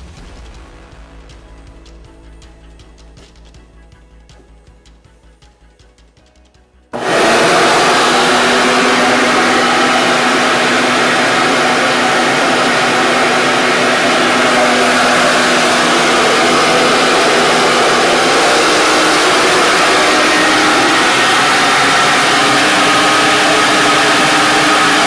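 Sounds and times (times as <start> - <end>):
electric blower running: 7.0 - 25.0.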